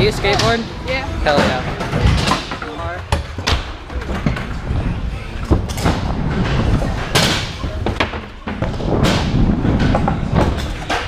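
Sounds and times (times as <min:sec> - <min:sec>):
scooter wheel rumble: 0:03.9 - 0:11.0.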